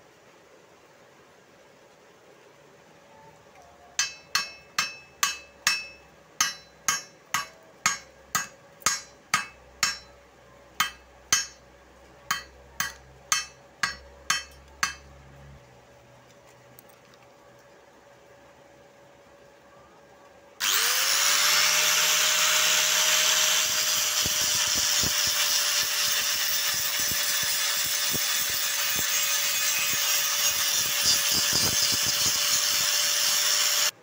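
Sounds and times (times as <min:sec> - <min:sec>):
chipping hammer striking metal: 0:04.0 - 0:10.1, 0:10.8 - 0:11.6, 0:12.3 - 0:15.1.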